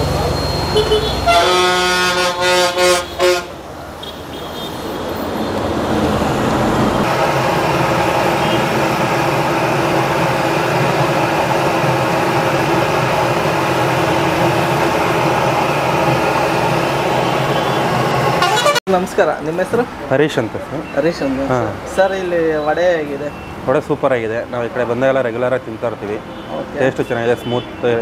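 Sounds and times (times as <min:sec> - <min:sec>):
vehicle horn honking: 0:00.6 - 0:05.0, 0:08.4 - 0:08.7, 0:17.2 - 0:18.8, 0:26.3 - 0:28.0.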